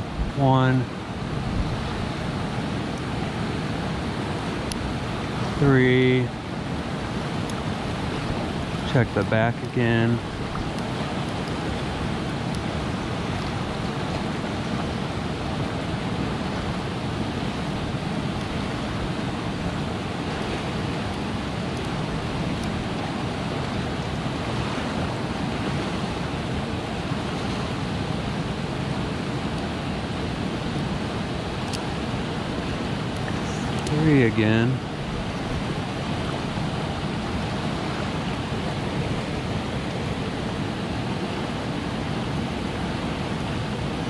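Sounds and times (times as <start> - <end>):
river rapids rushing: 0.0 - 44.0
faint clicks: 33.1 - 34.0.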